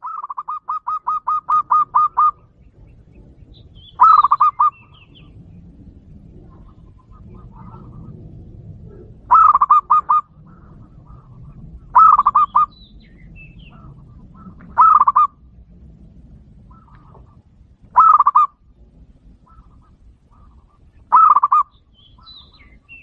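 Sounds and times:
faint bird chirps: 0.0 - 8.2, 19.4 - 23.0
dove cooing: 0.0 - 23.0.

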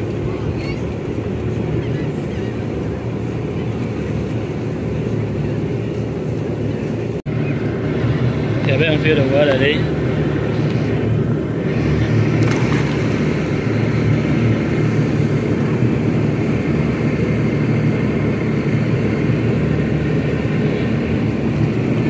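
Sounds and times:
boat engine drone: 0.0 - 22.0
water and wind rushing: 7.3 - 22.0.

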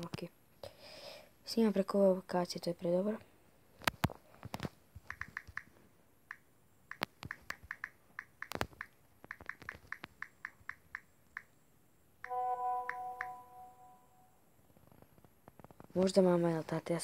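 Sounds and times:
phone keyboard clicks: 3.8 - 5.7, 6.3 - 11.5
message notification chime: 12.3 - 14.3.

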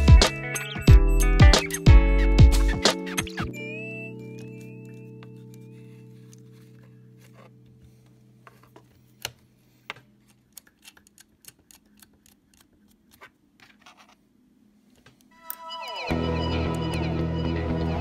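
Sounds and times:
background music: 0.0 - 8.7, 15.4 - 18.0.

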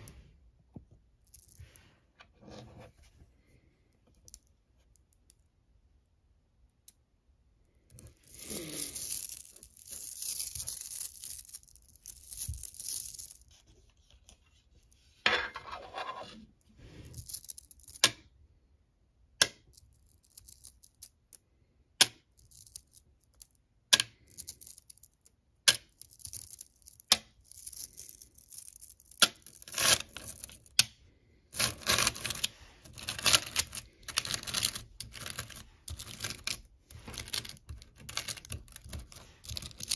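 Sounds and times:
magnet pebbles clicking and rattling: 1.2 - 1.9, 4.0 - 5.5, 7.7 - 15.0, 17.0 - 18.3, 19.5 - 21.4, 22.0 - 39.9.

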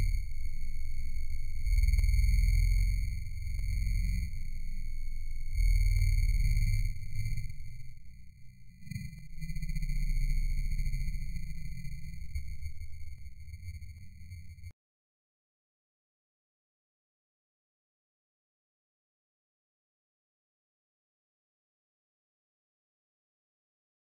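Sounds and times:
muffled low rumble: 0.0 - 14.7.

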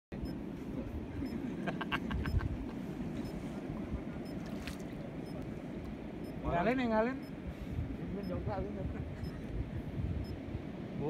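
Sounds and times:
low outdoor rumble: 0.1 - 11.0.

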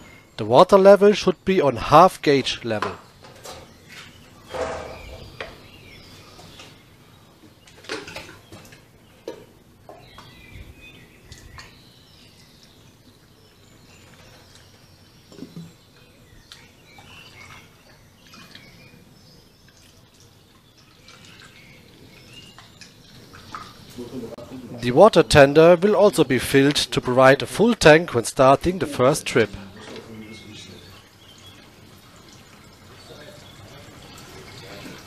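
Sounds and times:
water trickling through funnel: 10.0 - 26.8, 28.4 - 35.0.

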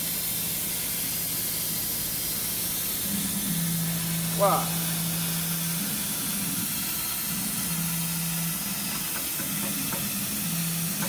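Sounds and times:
gas jet hissing: 0.0 - 11.0
low hum switching pitch: 3.0 - 8.8.

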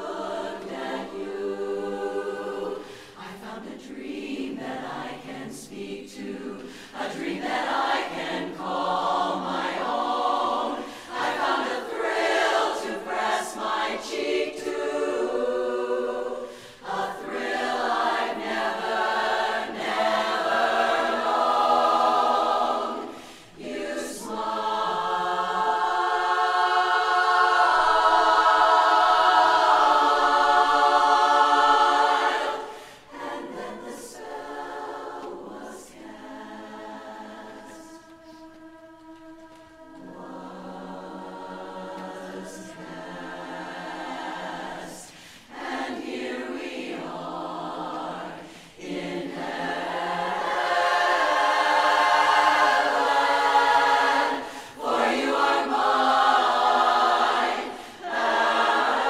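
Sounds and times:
women's chorus singing a cappella: 0.0 - 59.0.

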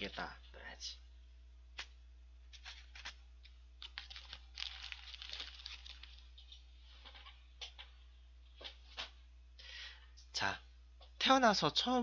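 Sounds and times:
paper packaging rustling: 2.5 - 3.2, 3.8 - 7.4.

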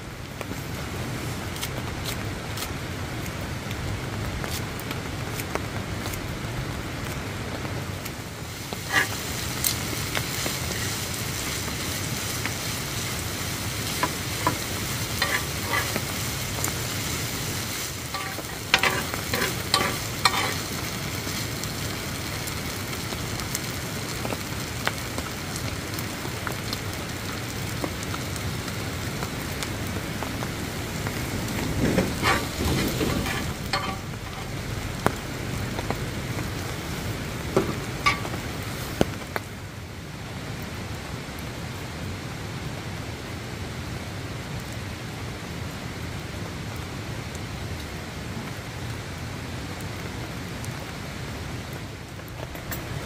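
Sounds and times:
rice sizzling on griddle: 0.0 - 42.0, 50.1 - 53.0
metal spoon clinking and scraping: 14.0 - 16.1, 18.1 - 20.6, 32.2 - 34.5, 38.1 - 38.4.

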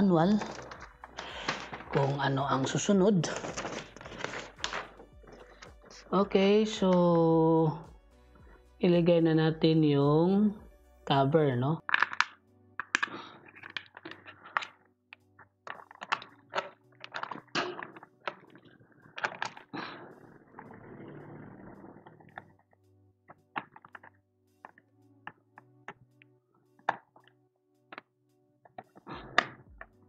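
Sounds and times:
plastic rustling: 0.2 - 6.1.

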